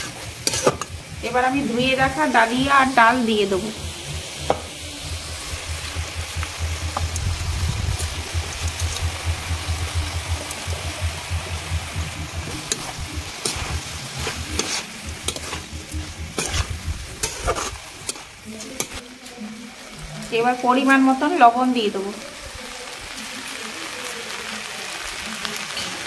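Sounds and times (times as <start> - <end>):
metal spatula scraping pan: 0.0 - 1.1, 12.7 - 19.0
vegetables sizzling in hot oil: 0.0 - 26.0
low steady hum: 0.8 - 18.0.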